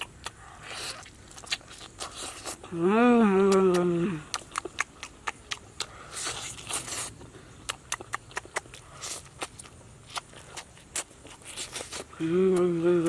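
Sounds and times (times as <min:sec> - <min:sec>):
person humming mmm: 0:02.6 - 0:04.6, 0:12.2 - 0:13.0
wet mouth clicks and smacks: 0:03.5 - 0:12.0.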